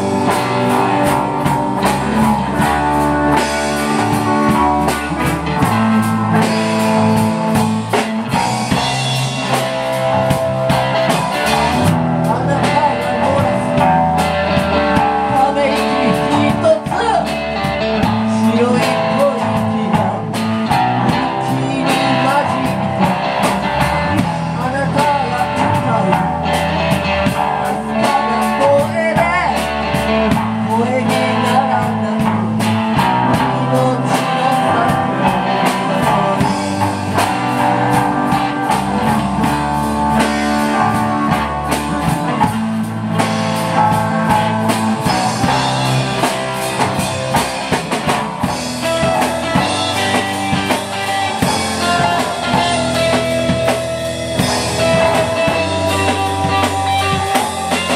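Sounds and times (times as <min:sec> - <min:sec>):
amplified electric guitars: 0:00.0 - 0:57.9
drum kit beat: 0:00.0 - 0:57.9
man singing: 0:11.3 - 0:39.6, 0:48.4 - 0:57.9.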